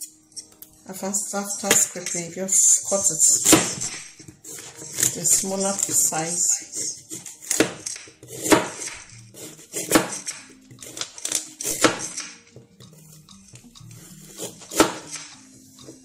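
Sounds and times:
knife chopping carrots on board: 0:03.4 - 0:13.0, 0:14.0 - 0:16.0.

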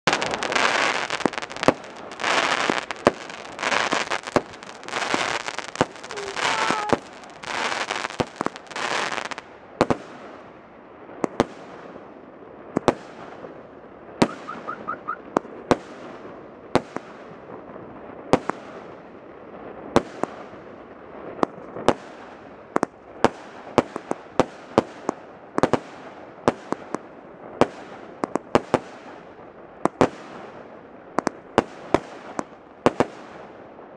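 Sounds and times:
fireworks banging with echo: 0:00.0 - 0:10.4, 0:12.7 - 0:13.6, 0:14.2 - 0:19.0, 0:31.2 - 0:33.6
fireworks crackling hiss: 0:00.0 - 0:33.9.

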